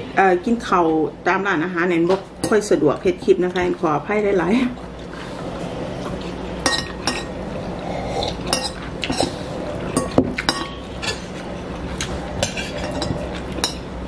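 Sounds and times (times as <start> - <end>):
cutlery clinking against bowls: 6.6 - 7.4, 8.4 - 13.9.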